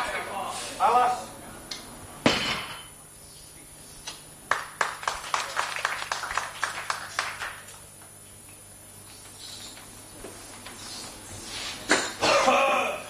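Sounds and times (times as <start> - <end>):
audience clapping: 4.4 - 8.0.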